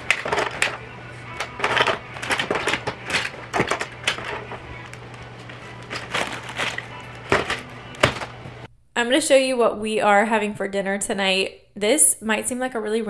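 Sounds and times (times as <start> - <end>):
plastic toys clattering: 0.0 - 8.4.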